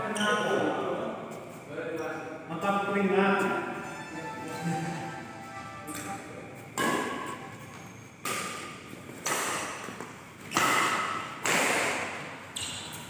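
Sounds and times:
rackets hitting shuttlecock: 6.8 - 13.0.

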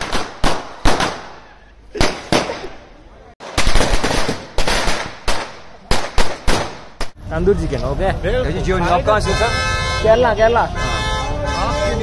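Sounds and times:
firecrackers banging: 0.0 - 7.3.

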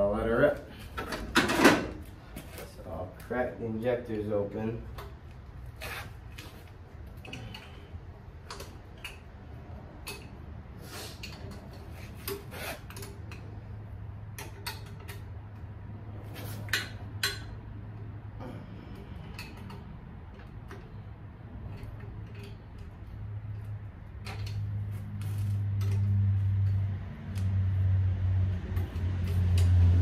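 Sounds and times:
steady low hum: 13.3 - 30.0.

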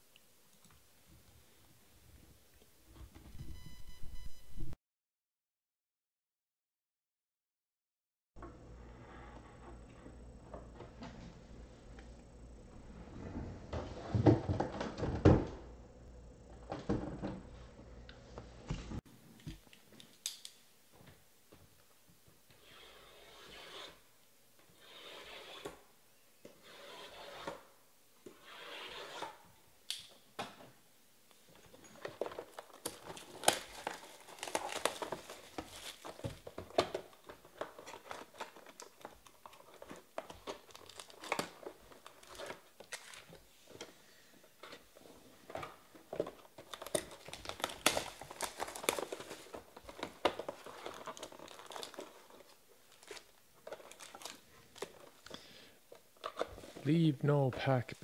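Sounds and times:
foil packs rustling: 32.0 - 43.4, 46.0 - 56.9.

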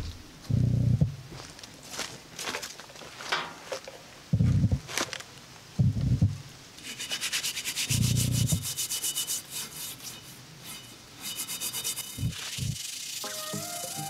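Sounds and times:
low thumps: 4.3 - 4.9, 5.8 - 6.4
steel pad scrubbing metal lid: 6.8 - 14.0.

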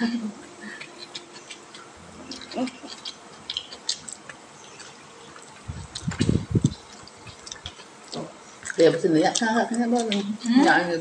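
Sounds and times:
quiet chewing: 0.5 - 11.0
low thuds: 5.7 - 6.9.

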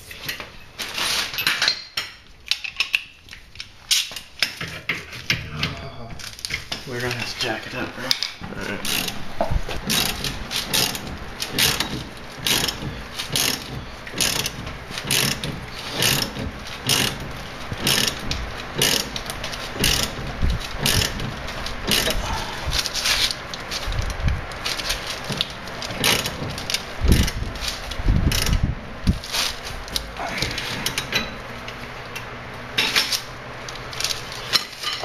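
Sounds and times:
ratchet wrench clicking: 9.8 - 17.2, 17.8 - 18.2, 18.8 - 19.2, 19.8 - 20.2, 20.8 - 22.2, 28.3 - 28.6.

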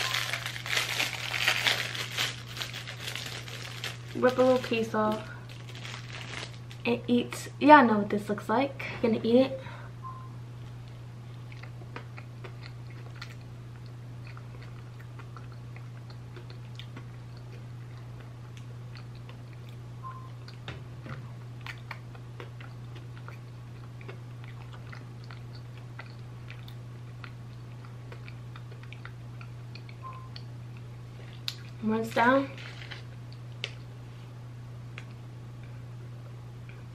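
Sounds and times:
steady low hum: 0.0 - 36.9
person chewing: 10.8 - 20.6, 21.6 - 31.8.

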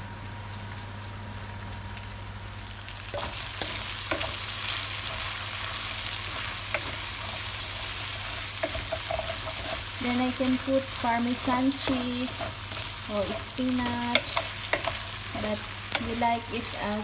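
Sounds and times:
pasta sizzling in a pot: 0.4 - 17.0
wooden spoon scraping and knocking pot: 3.1 - 5.3, 6.3 - 16.2.

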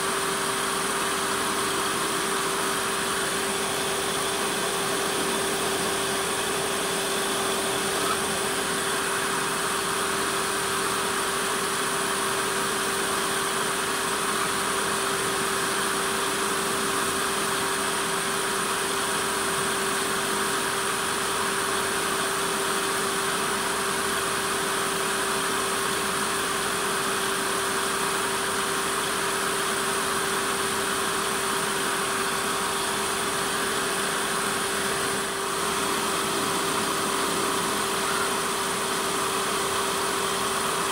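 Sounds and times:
wood lathe humming: 0.0 - 17.3, 30.0 - 40.9.

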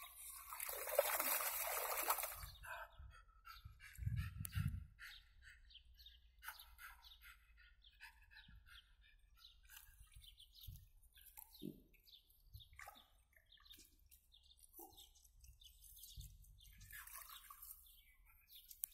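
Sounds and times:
faint birdsong chirps: 0.0 - 18.9.

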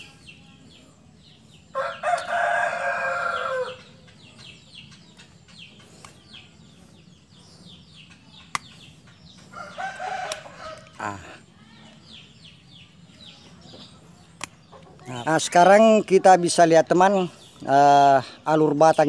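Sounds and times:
small birds chirping: 0.0 - 19.0
rooster crowing: 1.7 - 4.0, 9.5 - 11.1.

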